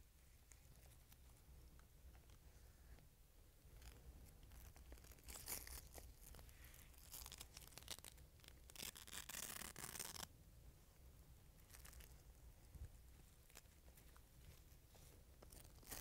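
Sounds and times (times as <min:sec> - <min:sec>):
hook-and-loop straps ripping: 0:03.8 - 0:10.3, 0:11.6 - 0:12.2, 0:15.4 - 0:16.0.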